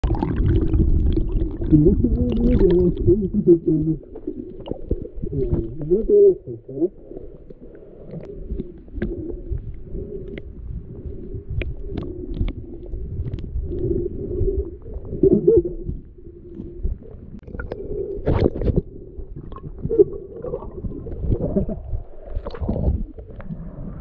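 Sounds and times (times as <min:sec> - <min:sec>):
underwater river current rumble: 0:00.0 - 0:24.0.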